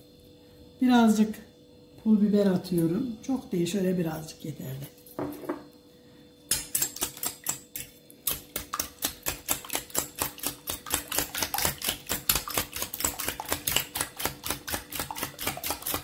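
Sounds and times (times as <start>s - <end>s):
whisk clicking on metal bowl: 6.5s - 16.0s.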